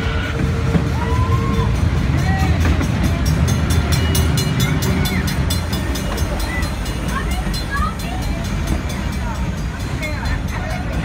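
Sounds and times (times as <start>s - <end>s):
train wheels rumbling on rail: 0.0s - 11.0s
rapid high ringing bell: 2.1s - 11.0s.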